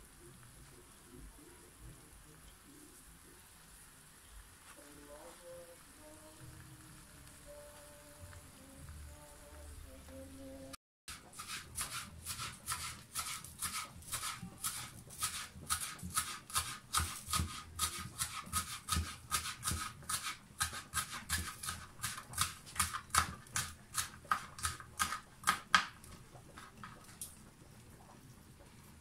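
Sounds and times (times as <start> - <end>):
knife chopping on cutting board: 11.4 - 26.0.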